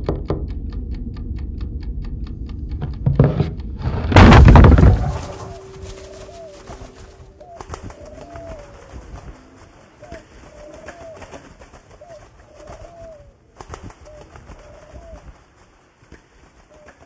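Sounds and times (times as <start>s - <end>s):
scattered clicks: 0.0s - 3.0s
low rumble: 0.2s - 5.8s
pigeons cooing: 4.7s - 17.0s.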